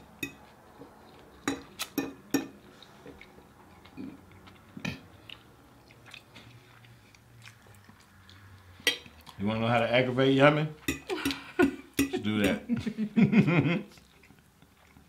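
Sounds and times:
fork clinking on plate: 0.2s - 0.5s, 1.5s - 2.6s.

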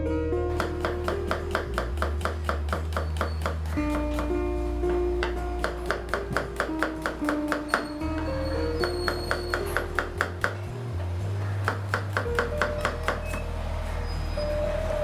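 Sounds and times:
background music: 0.0s - 15.0s
knife chopping on cutting board: 0.6s - 4.4s.

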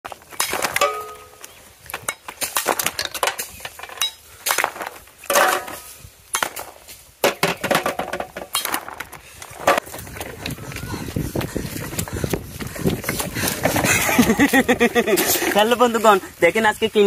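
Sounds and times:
clay pots knocked and cracking: 0.1s - 10.8s.

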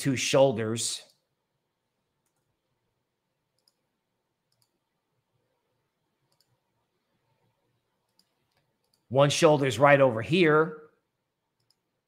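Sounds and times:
computer mouse clicks: 2.2s - 2.6s, 3.6s - 3.9s, 4.5s - 4.8s, 6.2s - 6.6s, 8.0s - 9.1s, 11.6s - 11.9s.

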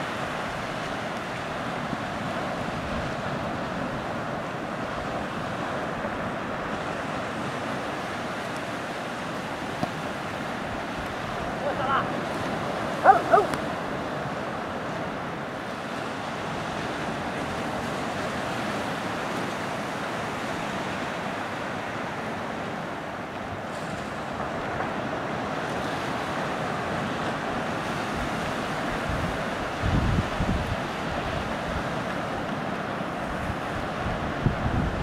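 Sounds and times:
ocean surf on beach: 0.0s - 35.0s
wind rumbling on microphone: 23.6s - 35.0s.

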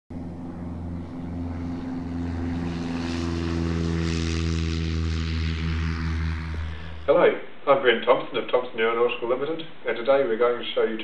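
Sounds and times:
light aircraft engine and propeller: 0.1s - 7.2s.

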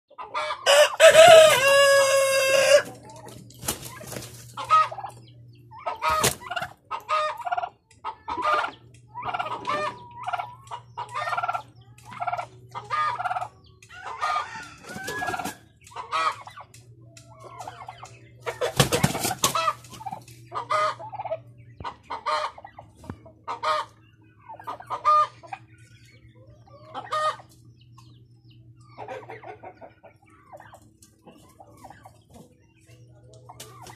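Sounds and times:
chicken clucking: 0.1s - 33.9s
rooster crowing: 0.6s - 2.8s, 14.1s - 15.5s.

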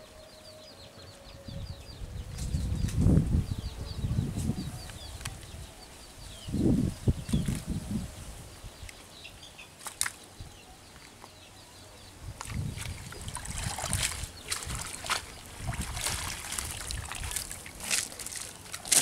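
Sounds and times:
water splashing and trickling: 12.2s - 19.0s.

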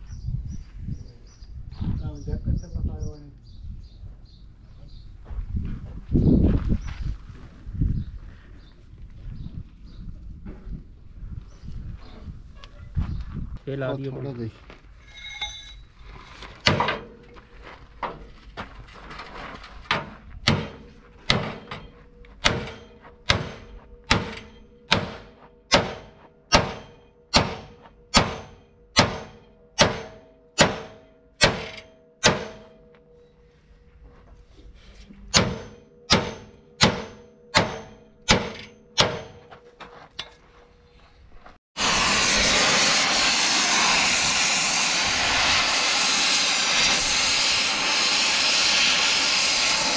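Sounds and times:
hammer ringing on steel frame: 20.5s - 33.4s, 35.3s - 39.5s
gas torch flame rushing: 41.8s - 49.9s.

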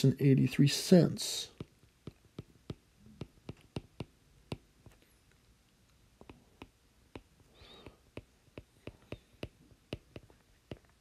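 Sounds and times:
stylus tapping on glass screen: 1.6s - 4.7s, 6.2s - 11.0s.

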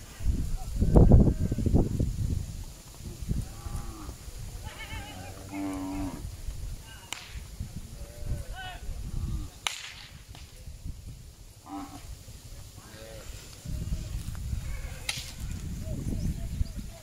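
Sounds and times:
cattle mooing: 4.8s - 6.2s
sharp cracks: 7.1s - 7.5s, 9.6s - 10.6s, 15.0s - 15.4s.

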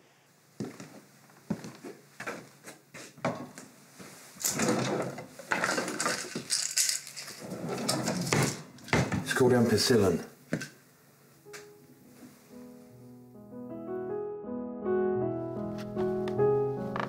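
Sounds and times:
rattling and rustling of objects: 2.2s - 9.4s
kitchen drawer pulled open: 4.4s - 6.2s, 7.4s - 8.7s.

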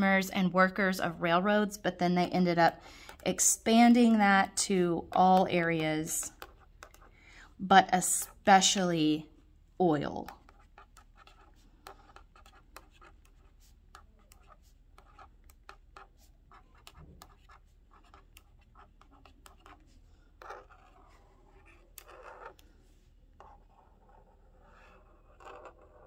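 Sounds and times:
marker writing on paper: 5.0s - 7.1s, 10.2s - 26.0s.

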